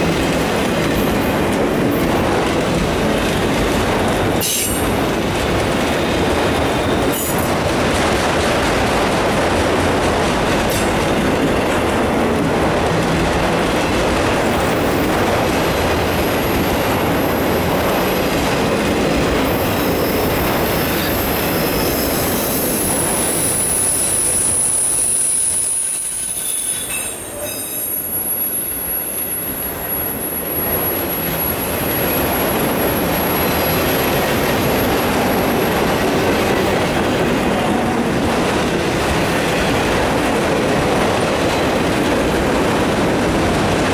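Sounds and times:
steel wheels rolling on rails: 0.0s - 43.9s
high wheel squeal: 19.8s - 34.1s.

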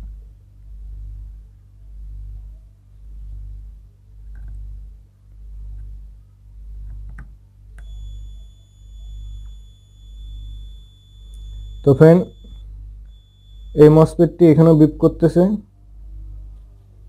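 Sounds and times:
low pulsing hum: 0.0s - 15.0s, 15.7s - 17.0s
probe tip clicks: 6.9s - 13.8s
multimeter continuity beep: 7.8s - 15.6s.

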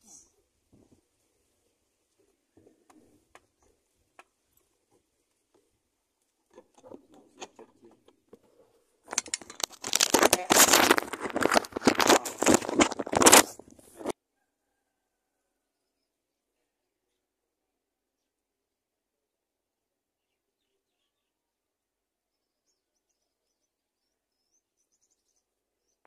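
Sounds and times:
loud dense crackling and rustling: 9.1s - 14.1s.

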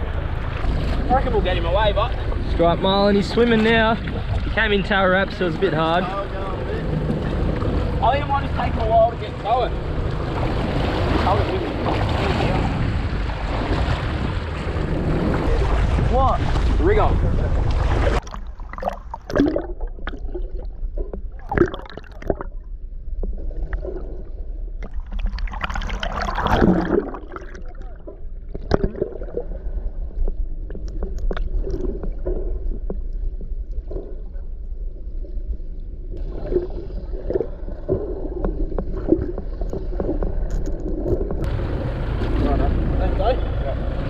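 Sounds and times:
steady low rumble: 0.0s - 44.0s
underwater gurgling rushing water: 0.0s - 44.0s
clicks underwater: 17.6s - 24.2s, 24.8s - 29.5s, 30.2s - 34.4s, 36.2s - 41.6s.

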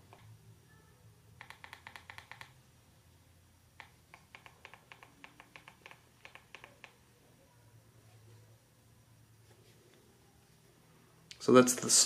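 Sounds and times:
remote buttons clicking: 1.4s - 2.6s, 3.8s - 7.0s.

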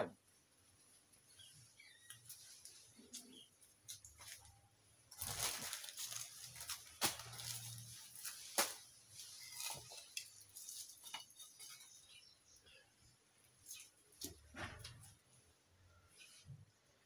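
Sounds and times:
dry debris rustling and crackling: 2.2s - 12.4s.

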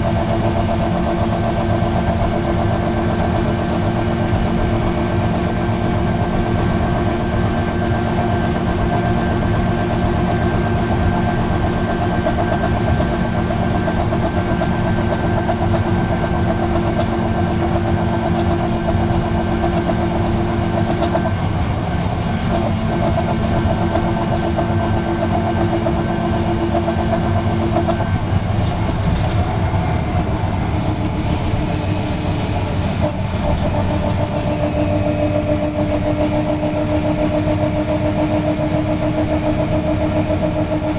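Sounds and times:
bus diesel engine droning: 0.0s - 40.9s.

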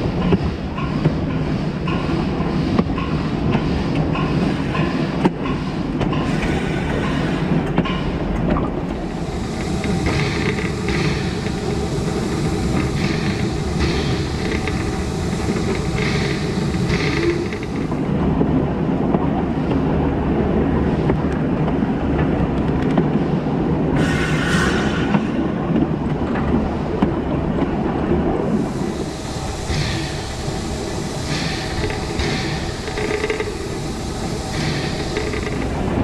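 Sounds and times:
rhythmic steam hiss bursts: 0.0s - 8.2s, 8.8s - 18.2s, 24.0s - 25.6s, 28.4s - 36.0s
wheels clicking over rail joints: 0.0s - 19.8s, 31.2s - 33.8s, 34.5s - 36.0s
steam locomotive running: 0.0s - 36.0s.

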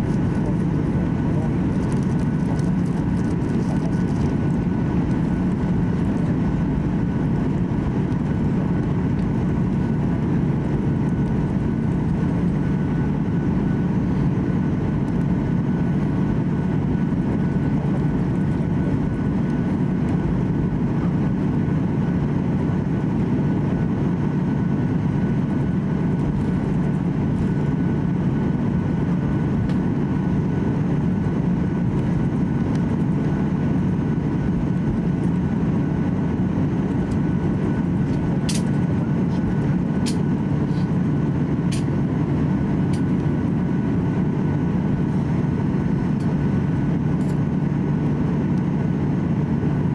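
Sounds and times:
faint steady whine: 0.0s - 49.9s
jet engine rumble in cabin: 0.0s - 49.9s.

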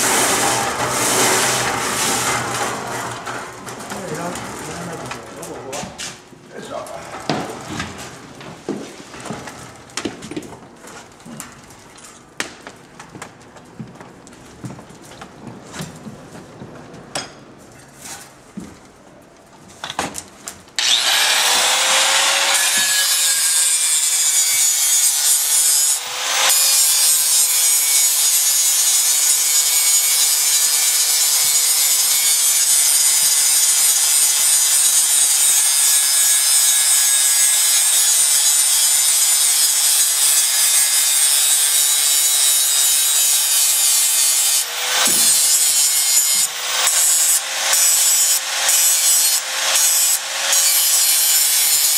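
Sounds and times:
angle grinder grinding steel: 0.0s - 5.0s, 20.8s - 51.9s.

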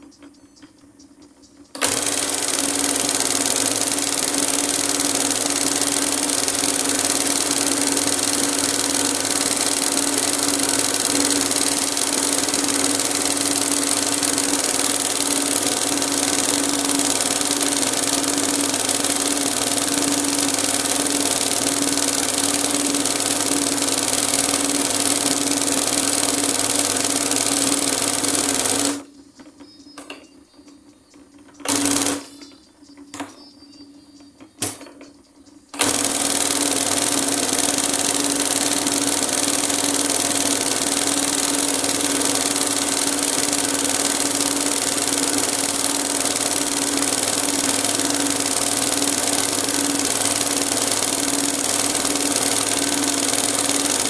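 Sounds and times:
embroidery machine stitching: 1.8s - 29.1s, 31.6s - 32.4s, 35.8s - 54.0s.

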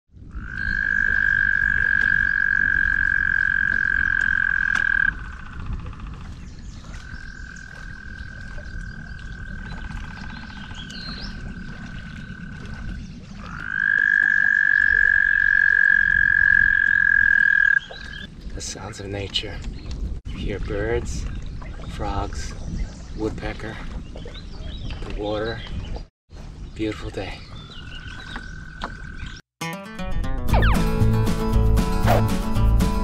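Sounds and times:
frogs trilling: 0.2s - 18.3s, 27.6s - 29.4s.

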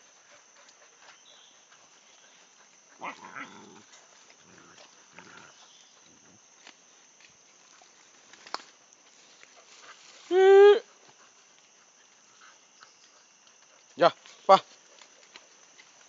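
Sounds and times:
dogs making low sounds: 0.0s - 6.4s.

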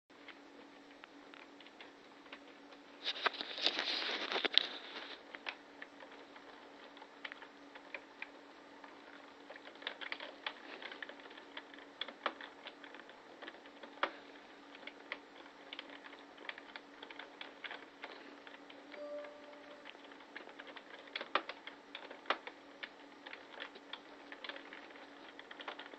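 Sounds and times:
faint steady hum: 0.1s - 21.0s
computer keyboard typing: 9.1s - 14.1s.

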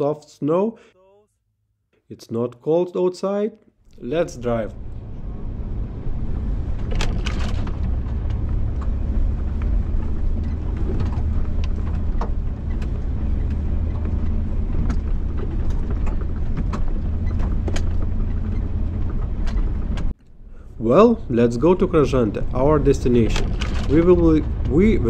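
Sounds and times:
car engine droning: 3.9s - 25.0s
sharp knocks and clicks: 6.8s - 20.3s.

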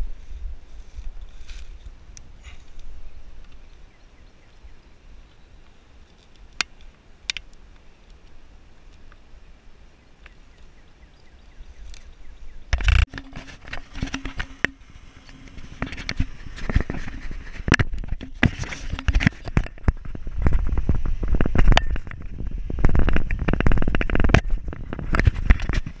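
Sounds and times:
footsteps crunching on gravel: 0.0s - 2.7s.

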